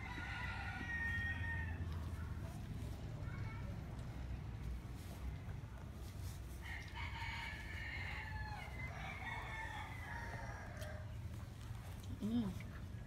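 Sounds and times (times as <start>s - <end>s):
rooster crowing: 0.0s - 1.8s, 6.6s - 11.0s.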